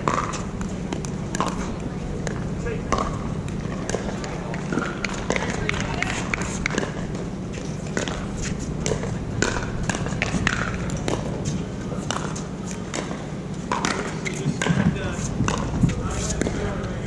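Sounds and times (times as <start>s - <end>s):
paddles striking plastic balls: 0.0s - 7.2s, 8.8s - 11.3s, 12.1s - 15.8s
steady low hum: 0.0s - 17.0s
faint voices: 0.4s - 7.2s, 13.9s - 17.0s.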